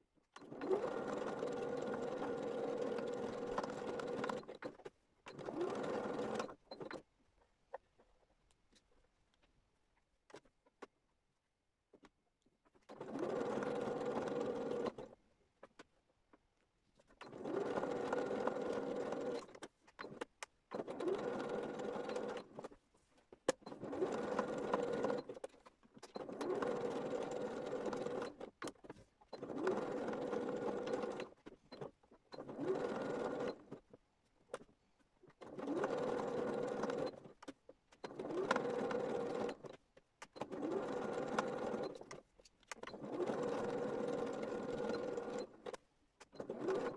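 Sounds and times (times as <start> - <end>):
electric sewing machine stitching: 0.4 - 7.0, 12.9 - 15.2, 17.2 - 22.7, 23.5 - 33.9, 35.4 - 46.9.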